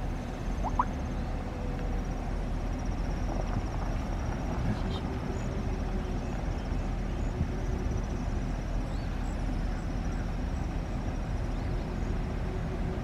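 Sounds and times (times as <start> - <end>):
car engine and tyres rumbling: 0.0 - 13.0
faint high chirps: 0.6 - 0.9.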